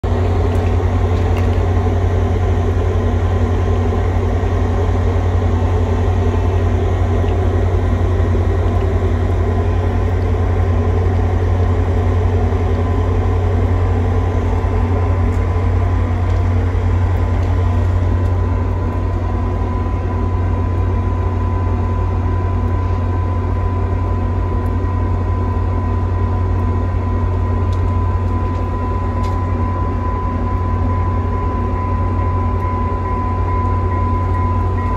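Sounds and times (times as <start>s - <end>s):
diesel locomotive idling: 0.0s - 34.9s.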